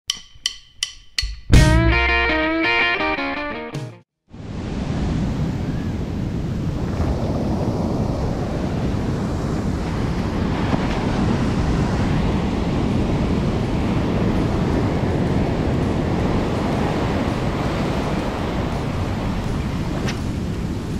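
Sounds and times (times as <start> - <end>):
short music sting: 1.5 - 3.2
ocean surf breaking on sand: 4.4 - 20.9
wind on microphone: 4.4 - 20.9.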